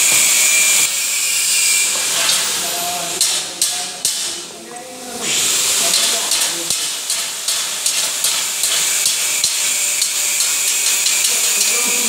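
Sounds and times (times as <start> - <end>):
welding arc crackling: 0.0 - 12.0.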